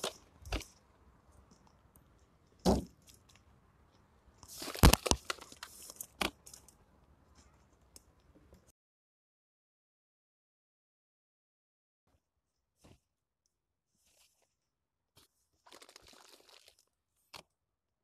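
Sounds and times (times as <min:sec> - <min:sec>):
plastic bag rustling: 0:04.5 - 0:06.6, 0:15.6 - 0:16.8.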